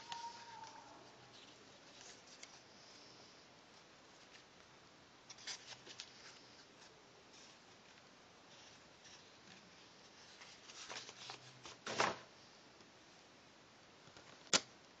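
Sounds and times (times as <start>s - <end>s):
paper rustling: 0.0s - 3.0s, 5.3s - 12.2s.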